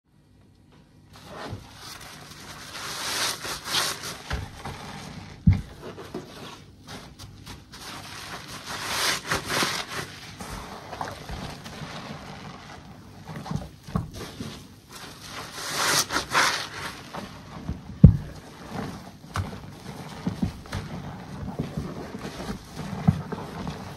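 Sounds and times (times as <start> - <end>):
wet sponge squelching: 1.1 - 23.9
dull thumps: 17.4 - 23.9.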